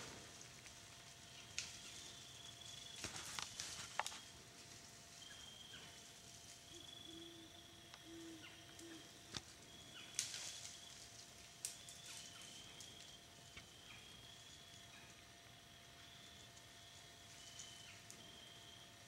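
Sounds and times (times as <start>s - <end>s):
brush rustling and snapping: 0.0s - 2.1s, 2.7s - 5.2s, 8.8s - 13.6s
twigs cracking: 0.0s - 6.5s, 8.7s - 13.7s.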